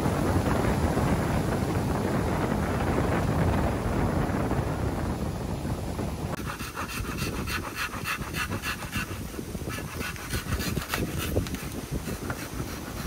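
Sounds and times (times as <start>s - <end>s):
handsaw cutting bamboo: 6.4s - 13.0s.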